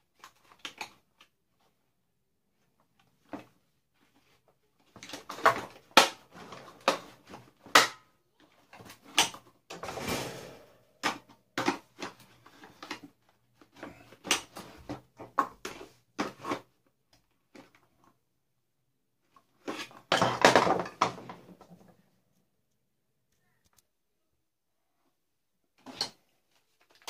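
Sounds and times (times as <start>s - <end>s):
plastic parts clicking and rattling: 0.1s - 1.7s, 10.9s - 18.2s.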